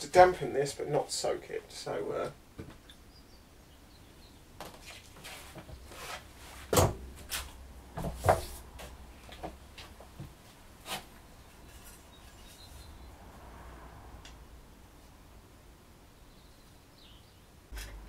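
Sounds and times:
rustling: 4.6s - 13.0s.

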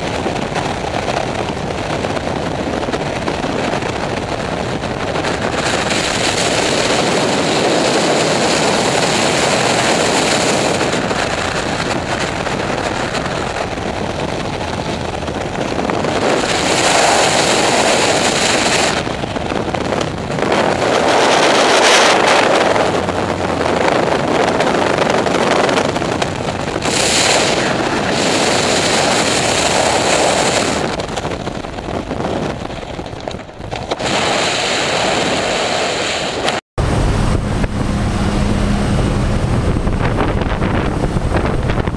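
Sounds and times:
freefall wind rushing: 0.0s - 41.9s.

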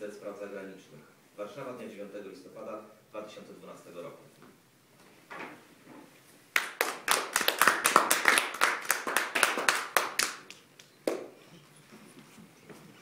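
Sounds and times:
small audience applauding: 6.5s - 11.4s.

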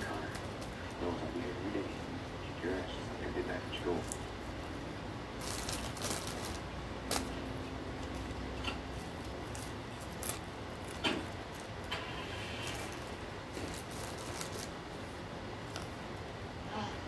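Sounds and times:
low hum: 0.0s - 17.0s
packaging clicks and crinkles: 5.4s - 7.4s, 8.9s - 14.8s.

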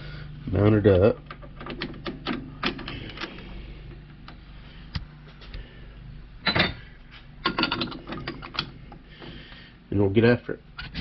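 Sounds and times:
metal clicks and knocks: 1.2s - 3.4s, 7.4s - 8.8s.

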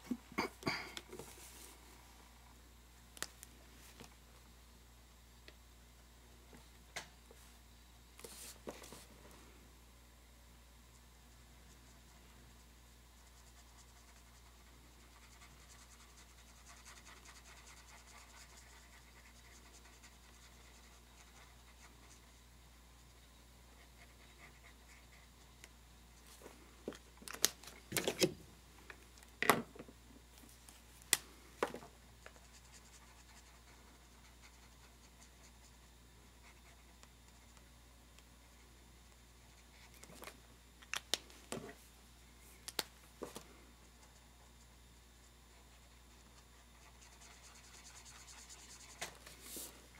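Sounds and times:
pen scratching on paper: 13.2s - 22.4s, 32.4s - 35.8s, 45.5s - 49.6s.

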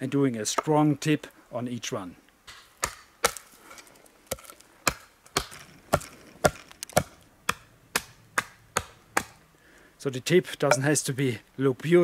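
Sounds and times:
knife chopping wood: 2.5s - 3.5s, 4.3s - 9.4s.

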